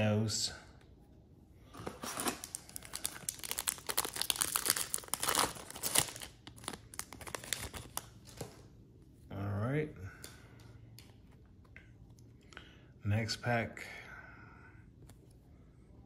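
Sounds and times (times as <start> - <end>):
foil wrapper crinkling: 2.0 - 8.5.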